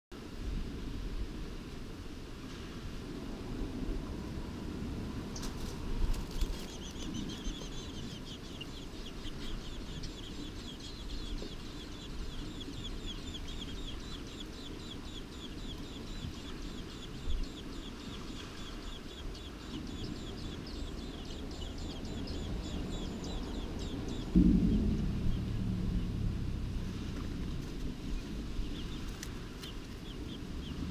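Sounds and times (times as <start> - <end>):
wings fluttering: 5.3 - 12.4, 26.9 - 30.1
nestlings peeping: 5.4 - 26.2, 27.0 - 30.9.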